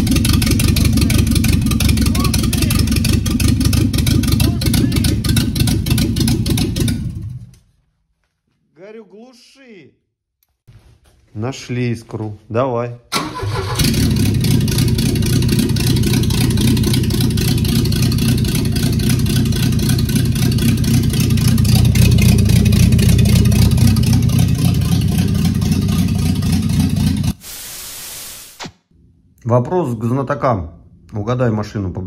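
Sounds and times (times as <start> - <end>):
petrol engine running: 13.2 - 27.4.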